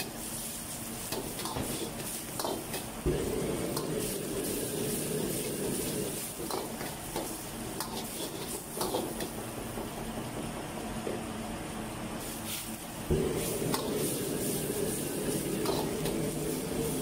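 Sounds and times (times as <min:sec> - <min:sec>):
food sizzling in a wok: 0:00.0 - 0:10.9, 0:12.2 - 0:17.0.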